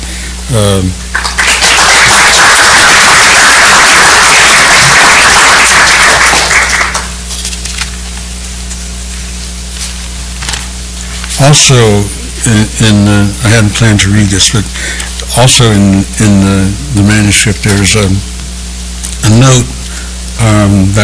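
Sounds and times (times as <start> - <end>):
sound system hum: 0.0 - 21.0
audience applauding: 1.1 - 7.2.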